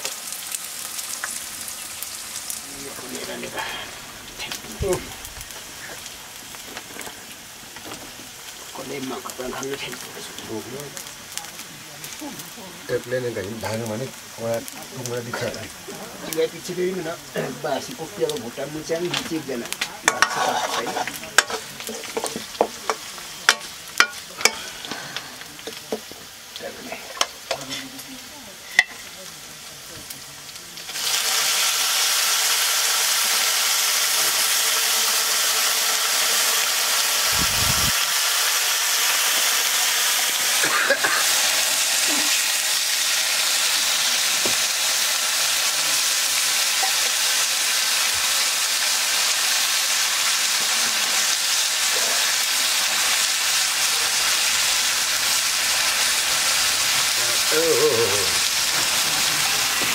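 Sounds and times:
meat sizzling in a wok: 0:00.0 - 0:59.9
metal ladle scraping a wok: 0:20.1 - 0:25.0.

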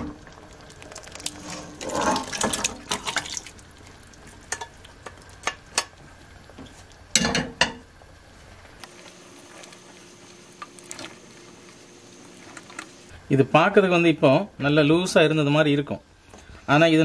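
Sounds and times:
wet splashes in pot: 0:00.5 - 0:05.8
scraping in pot: 0:01.3 - 0:03.3.

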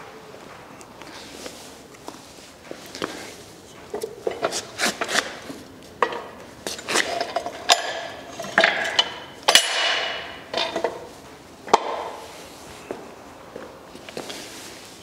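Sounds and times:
metal clanks on concrete floor: 0:06.0 - 0:11.1.

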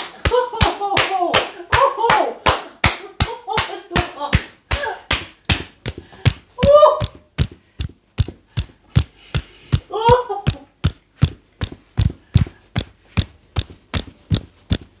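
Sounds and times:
hands slapping skin: 0:00.0 - 0:15.0.

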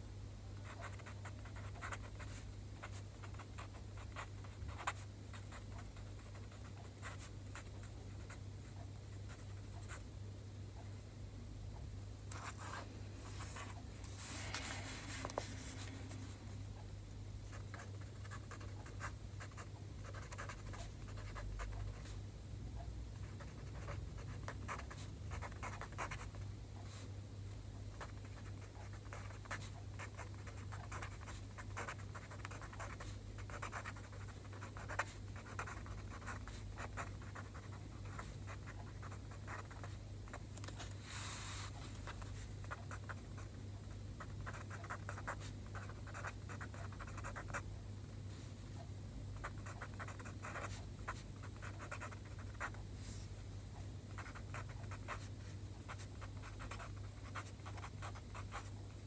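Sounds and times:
faint low hum: 0:00.0 - 0:59.0
pen scratching on paper: 0:17.5 - 0:22.1, 0:23.2 - 0:26.3, 0:28.0 - 0:39.9, 0:44.2 - 0:47.6, 0:49.4 - 0:52.8, 0:54.2 - 0:55.3.

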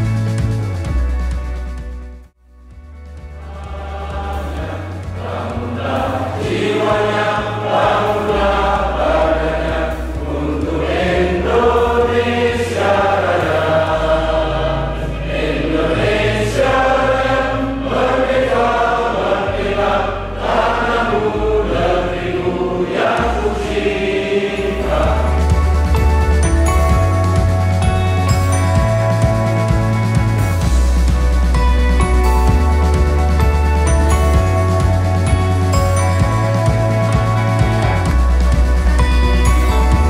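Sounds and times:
backing accompaniment with low bass: 0:00.0 - 0:40.0
group singing in unison: 0:03.4 - 0:26.2.

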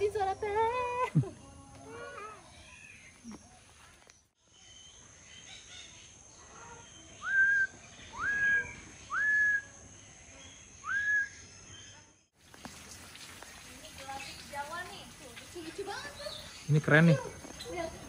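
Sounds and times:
bird whistling: 0:07.2 - 0:09.8, 0:10.8 - 0:11.4.

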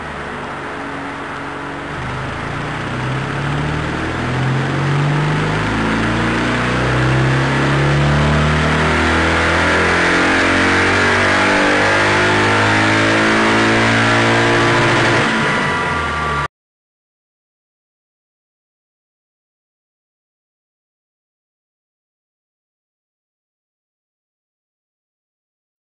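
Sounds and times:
motorcycle engine revving: 0:00.0 - 0:16.5.

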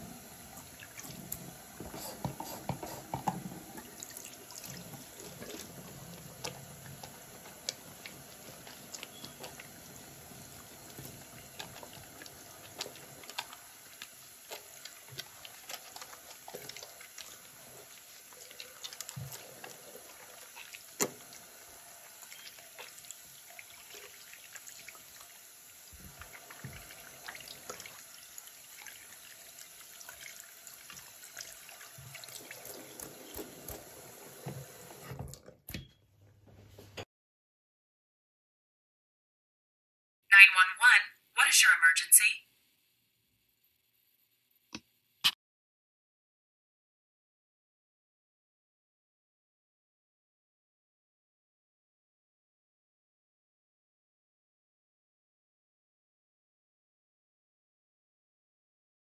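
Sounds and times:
faucet running into sink: 0:00.0 - 0:35.5.

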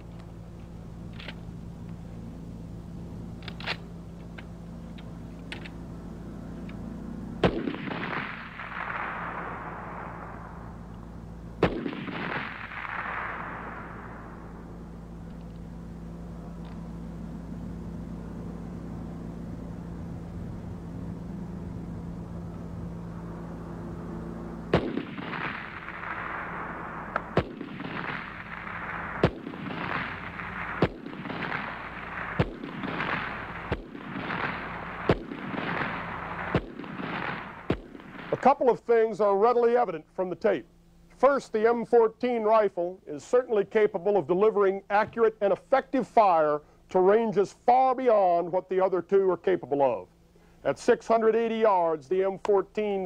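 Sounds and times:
steady low hum: 0:00.0 - 0:53.0
rifle shots with echo: 0:07.4 - 0:16.2, 0:24.7 - 0:38.8.

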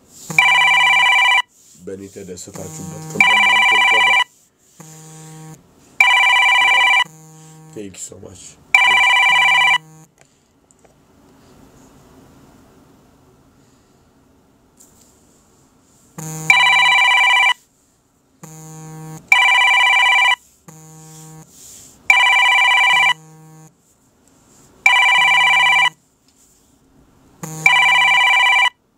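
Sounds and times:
electronic telephone ringtone: 0:00.4 - 0:01.5, 0:02.7 - 0:04.3, 0:04.9 - 0:07.8, 0:08.8 - 0:10.0, 0:16.4 - 0:17.6, 0:18.7 - 0:21.4, 0:22.1 - 0:23.6, 0:24.9 - 0:26.0, 0:27.5 - 0:28.8.

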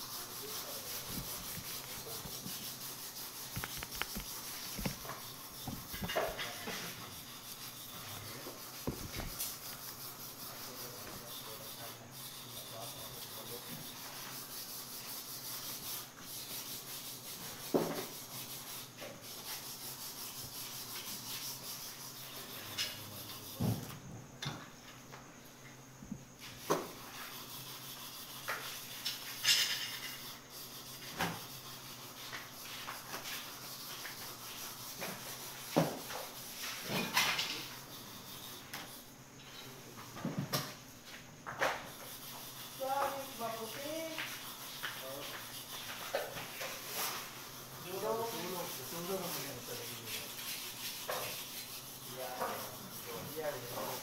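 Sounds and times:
steady background hiss: 0:00.0 - 0:54.0
knife knocks and scrapes: 0:03.4 - 0:07.2, 0:08.4 - 0:09.6, 0:17.6 - 0:18.2, 0:22.7 - 0:25.2, 0:26.0 - 0:27.3, 0:31.0 - 0:31.5, 0:35.0 - 0:37.8, 0:38.7 - 0:42.1.

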